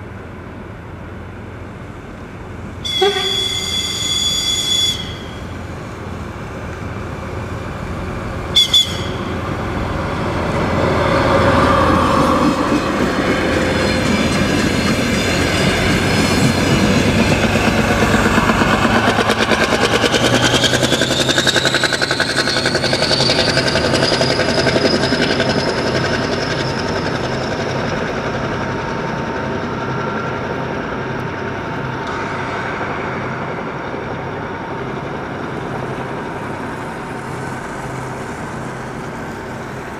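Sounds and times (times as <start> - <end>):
diesel engine: 0.0 - 39.9
train horn toot: 2.8 - 5.6, 8.5 - 9.4
rising whine: 31.1 - 39.8.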